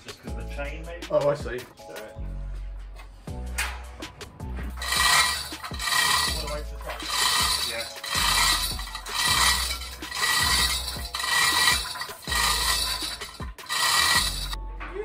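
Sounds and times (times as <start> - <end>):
hoist chain rattling and clinking: 4.8 - 14.6.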